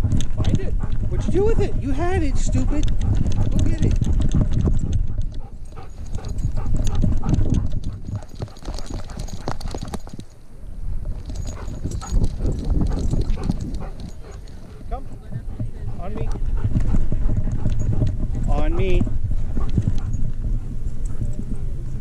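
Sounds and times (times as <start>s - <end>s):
dog paws striking ground: 0.0s - 10.4s, 11.0s - 22.0s.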